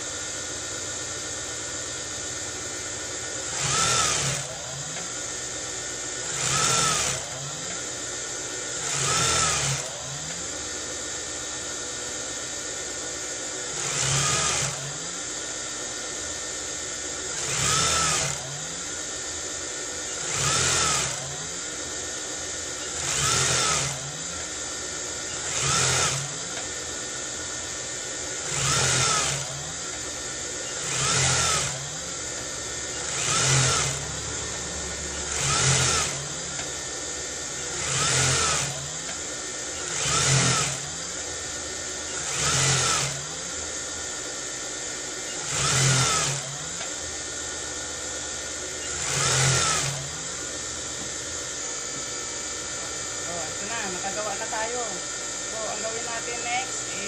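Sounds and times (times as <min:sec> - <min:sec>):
sewing machine motor hum: 0:00.0 - 0:57.0
sewing machine stitching bursts: 0:02.7 - 0:05.5, 0:06.2 - 0:07.9, 0:08.6 - 0:10.3, 0:13.7 - 0:15.1, 0:17.2 - 0:18.9, 0:20.0 - 0:21.7, 0:22.5 - 0:27.0, 0:27.9 - 0:43.5, 0:45.2 - 0:46.8, 0:48.8 - 0:50.2.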